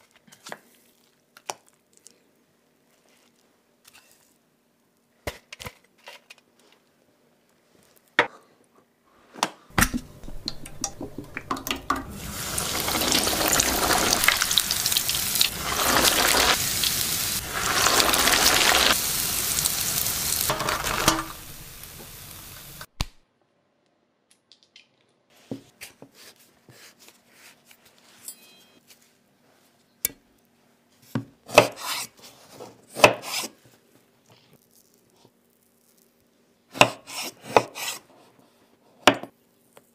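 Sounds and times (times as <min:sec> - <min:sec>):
oil sizzling while deep-frying: 0:10.2 - 0:22.9.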